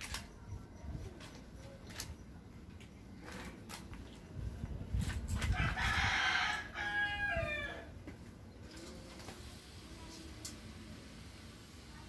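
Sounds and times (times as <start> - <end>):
rooster crowing: 5.5 - 7.9.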